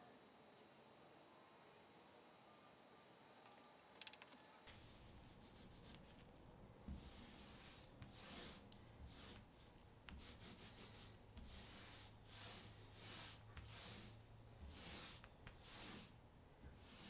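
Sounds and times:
paint roller rolling on hull: 6.8s - 17.0s.

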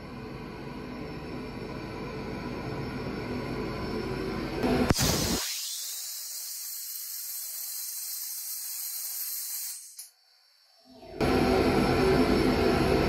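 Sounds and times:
dry ice blaster nozzle hissing: 4.9s - 10.2s.

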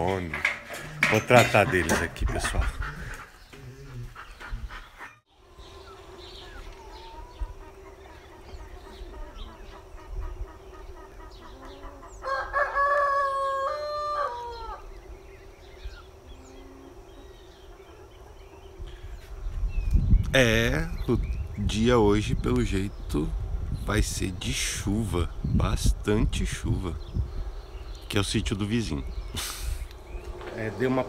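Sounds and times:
bird chirps: 3.2s - 12.3s
rooster crowing: 11.4s - 15.0s.

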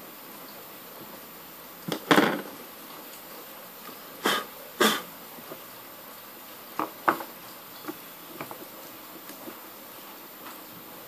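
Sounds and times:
person coughing: 4.2s - 5.1s.

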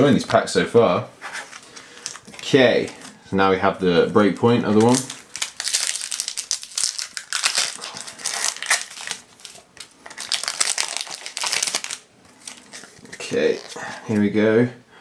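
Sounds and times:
foil wrapper crinkling: 1.4s - 3.1s, 4.2s - 14.1s.

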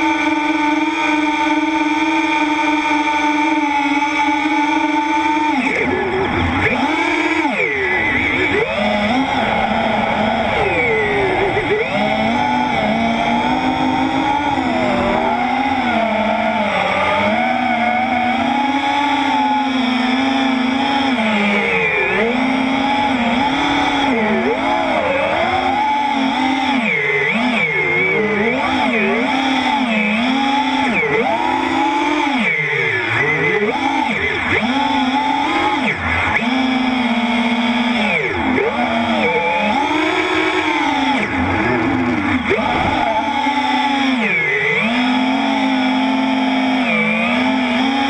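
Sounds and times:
quadcopter motors whining: 0.0s - 48.0s.

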